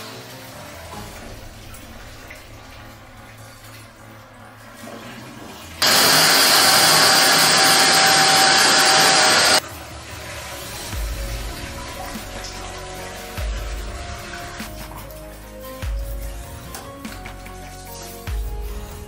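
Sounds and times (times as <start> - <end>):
vacuum cleaner motor running: 5.8 - 9.6.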